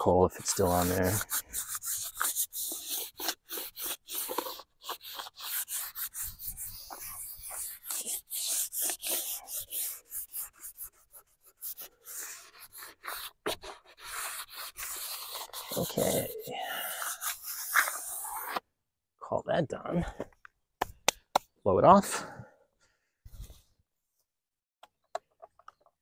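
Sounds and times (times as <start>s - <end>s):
sanding sponge scratching wood: 0.0s - 18.6s.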